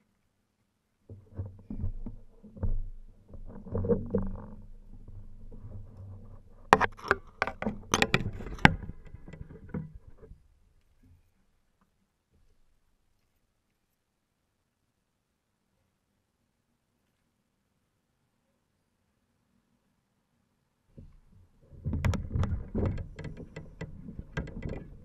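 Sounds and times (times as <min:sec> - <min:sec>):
fishing rod knocking camera: 0:21.9 - 0:25.0.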